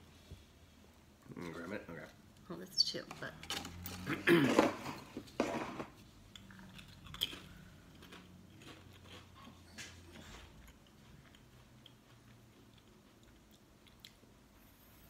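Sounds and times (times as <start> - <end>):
person chewing potato chip: 6.3 - 14.5.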